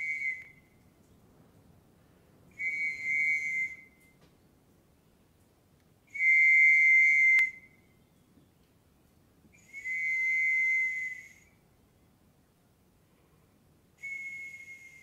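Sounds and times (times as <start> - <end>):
high whistling tones: 0.0 - 0.8, 2.5 - 4.2, 6.1 - 7.9, 9.6 - 11.6, 14.0 - 15.0.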